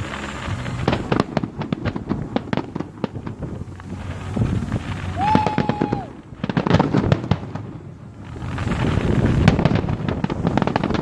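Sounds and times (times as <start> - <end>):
fireworks popping and crackling: 0.0 - 11.0
high whistle: 5.0 - 6.2.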